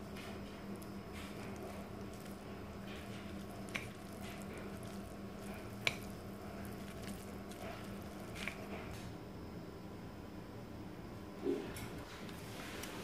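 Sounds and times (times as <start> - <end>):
noodles squishing in bowl: 0.0 - 9.1, 11.9 - 13.0
chopsticks clicking: 2.9 - 8.9.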